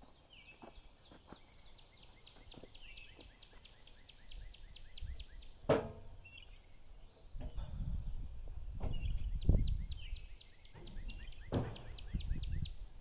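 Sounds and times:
songbird trilling: 9.0 - 12.8.

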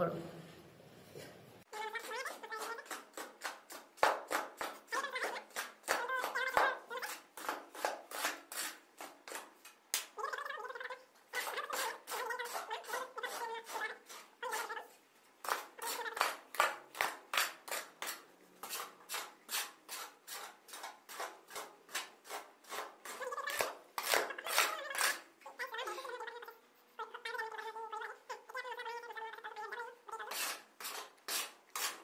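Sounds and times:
spade scraping sand and cement: 30.2 - 32.0.

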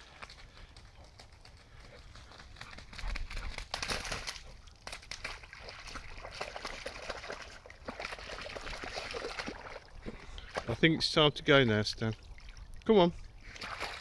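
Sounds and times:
footsteps splashing in mud: 3.3 - 10.8, 13.4 - 14.0.

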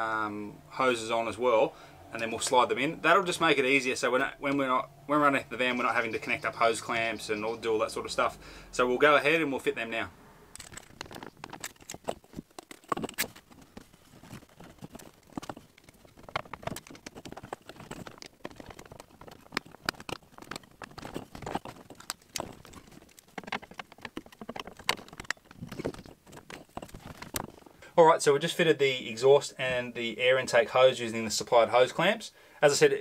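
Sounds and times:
clicks taps and rattles: 10.6 - 27.7.

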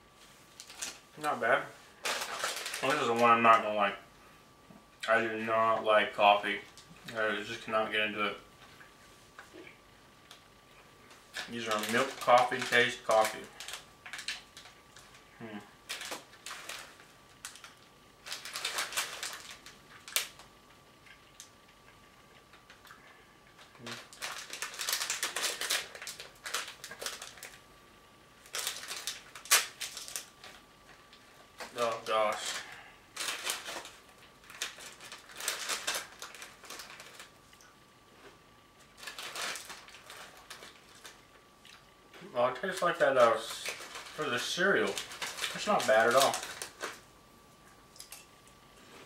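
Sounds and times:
plastic wrapper crinkling: 0.5 - 3.7, 11.2 - 15.2, 15.8 - 27.7, 28.4 - 37.7, 38.8 - 41.8, 42.5 - 47.1
wrapper snapping: 0.6 - 1.0, 2.0 - 3.6, 11.3 - 15.2, 15.8 - 20.5, 23.6 - 27.6, 28.4 - 37.6, 38.9 - 41.8, 42.6 - 47.0.

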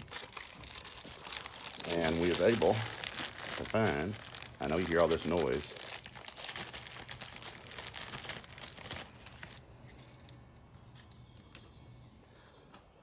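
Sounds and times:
plastic bag crinkling: 0.0 - 9.6
faint low hum: 0.0 - 13.0.

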